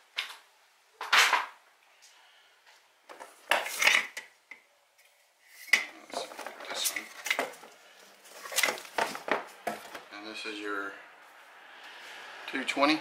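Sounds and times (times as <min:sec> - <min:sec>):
rustling and clattering in a box: 0:06.0 - 0:10.1.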